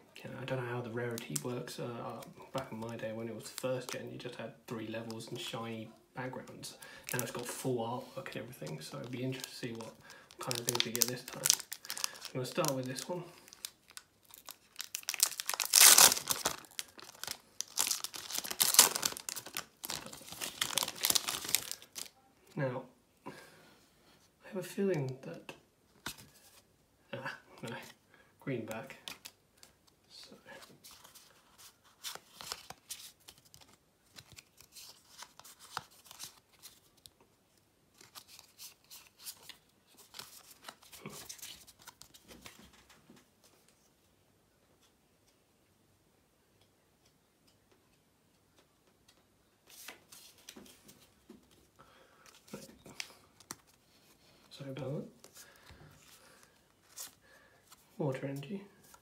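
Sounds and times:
foil wrapper crinkling: 0:09.3 - 0:22.1
trading cards clicking and rustling: 0:14.3 - 0:22.1.

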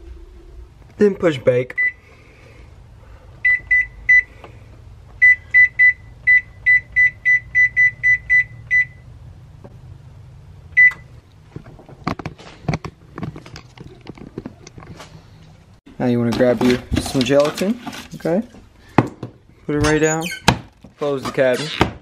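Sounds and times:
oven control panel beeps: 0:10.8 - 0:11.1
knocks and clatters: 0:11.5 - 0:15.5.

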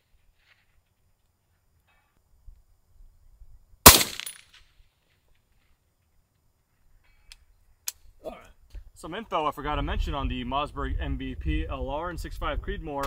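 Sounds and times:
suppressed rifle shot: 0:03.9 - 0:04.4.

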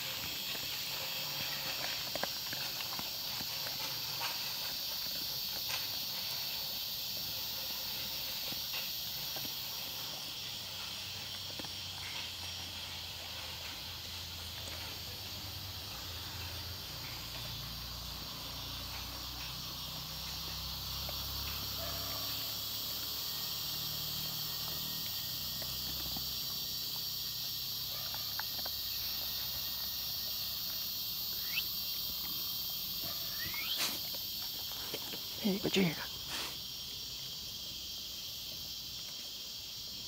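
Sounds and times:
dog eating dry kibble: 0:00.0 - 0:07.2, 0:25.0 - 0:30.8
crickets chirring: 0:00.0 - 0:40.0.

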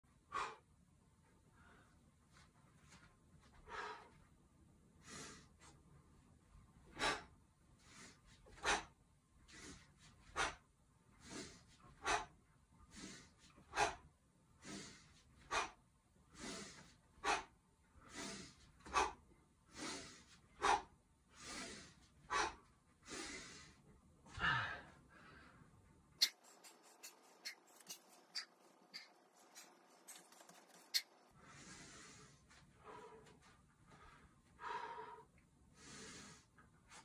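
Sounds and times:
man exhaling forcefully: 0:24.4 - 0:24.9.

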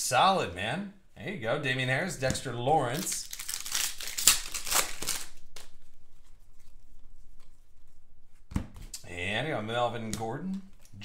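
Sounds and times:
foil wrapper snap: 0:03.0 - 0:05.7
foil wrapper tearing and crinkling: 0:03.0 - 0:05.8.

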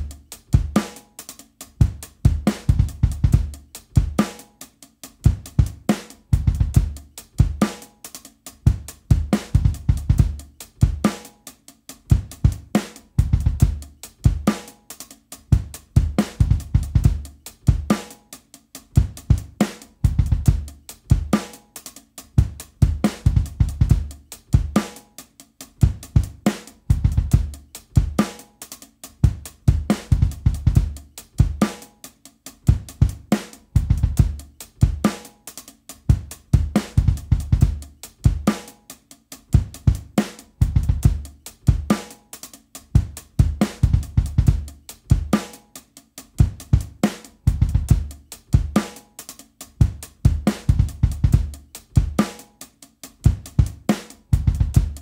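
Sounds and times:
slow hip-hop drum groove: 0:00.0 - 0:55.0.

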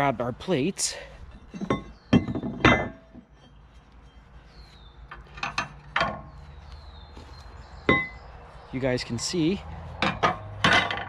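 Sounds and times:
metal plates clanking: 0:01.4 - 0:03.6, 0:05.2 - 0:06.3, 0:07.9 - 0:08.2, 0:10.0 - 0:11.0
light metal knocks and clinks: 0:01.5 - 0:03.4.

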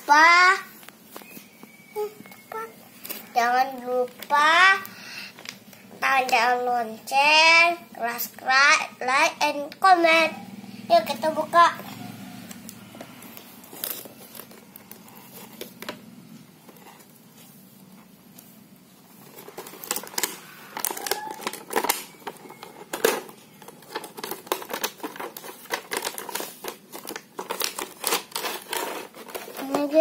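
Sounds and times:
plastic packaging crinkling: 0:19.1 - 0:30.0.

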